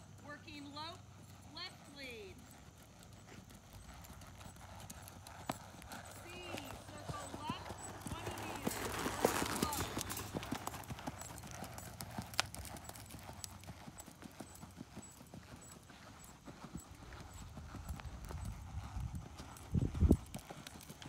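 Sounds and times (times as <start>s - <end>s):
horse hoofbeats on sand: 1.7s - 21.0s.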